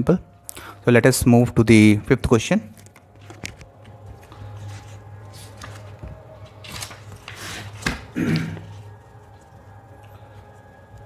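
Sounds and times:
paper rustling and sliding: 0:03.2 - 0:08.1.

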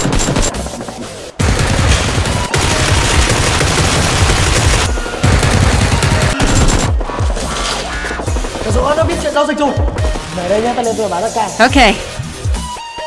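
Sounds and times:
machine-gun fire: 0:00.0 - 0:07.1.

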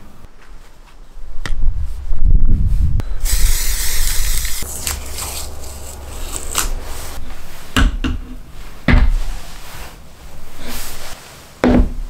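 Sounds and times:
spray paint can hissing: 0:03.2 - 0:06.4.

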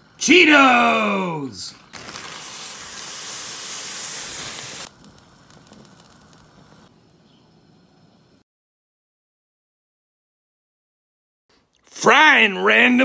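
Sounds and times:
water boiling and bubbling: 0:01.8 - 0:06.9.

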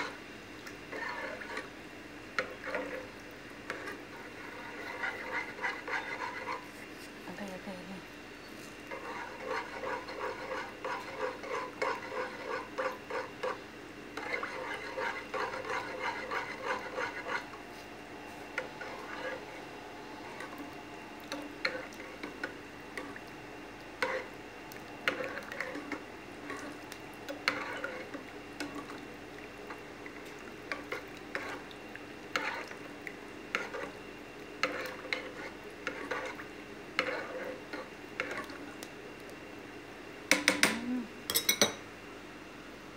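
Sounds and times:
metal spoon stirring in pot: 0:00.8 - 0:01.7, 0:02.4 - 0:07.1, 0:08.5 - 0:17.8, 0:18.5 - 0:20.6, 0:21.3 - 0:23.2, 0:24.0 - 0:24.3, 0:25.0 - 0:29.0, 0:29.6 - 0:31.7, 0:32.3 - 0:32.9, 0:33.5 - 0:38.6
spoon clinking on pot: 0:40.3 - 0:41.8.

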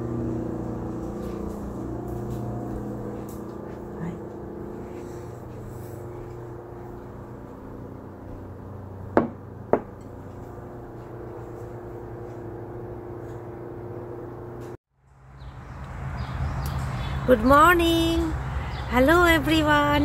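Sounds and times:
low mechanical hum: 0:00.0 - 0:20.0
sharp knocks: 0:09.2 - 0:10.0.

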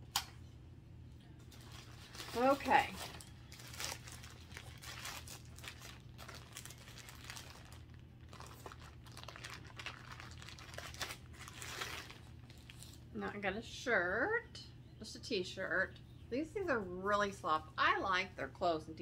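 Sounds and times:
plastic packaging crinkling: 0:01.5 - 0:13.1.

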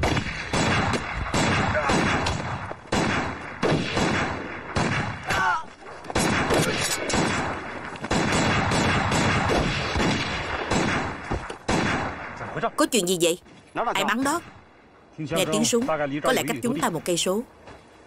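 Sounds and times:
gunfire shots: 0:00.0 - 0:12.6.

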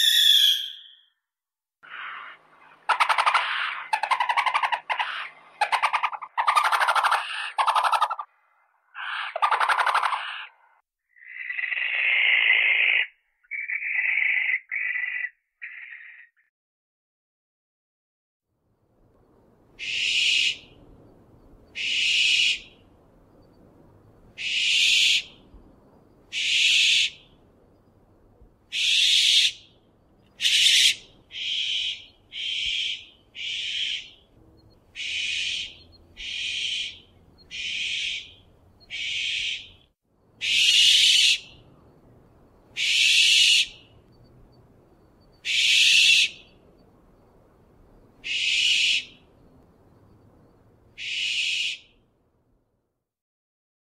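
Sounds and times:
owl screeching: 0:00.0 - 0:01.1, 0:01.8 - 0:08.3, 0:09.0 - 0:10.6, 0:19.8 - 0:20.7, 0:21.8 - 0:22.8, 0:24.4 - 0:25.3, 0:26.3 - 0:27.2, 0:28.7 - 0:29.6, 0:30.4 - 0:34.2, 0:35.0 - 0:39.7, 0:40.4 - 0:41.5, 0:42.8 - 0:43.8, 0:45.4 - 0:46.4, 0:48.2 - 0:49.2, 0:51.0 - 0:51.9.

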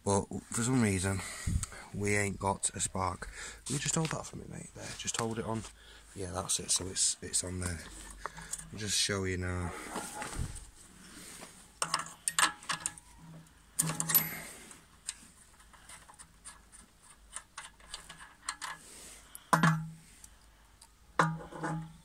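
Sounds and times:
metal clicks and knocks: 0:11.8 - 0:13.0, 0:13.8 - 0:14.3, 0:15.0 - 0:18.8, 0:19.4 - 0:20.0, 0:21.2 - 0:22.0.

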